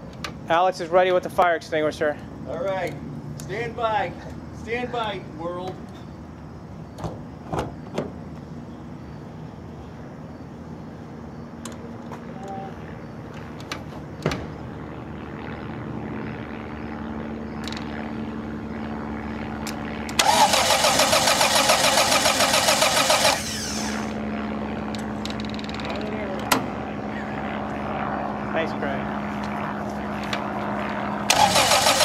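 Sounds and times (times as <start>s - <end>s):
steady low hum: 0.0s - 32.0s
aircraft engine starter cranking: 19.7s - 24.1s, 31.3s - 32.0s.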